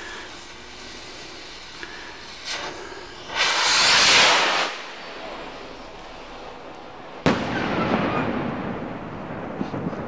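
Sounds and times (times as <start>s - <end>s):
firework rocket hissing: 0.0s - 6.6s
firework bang: 2.4s - 5.0s, 7.2s - 10.0s
rumbling echo: 4.7s - 10.0s.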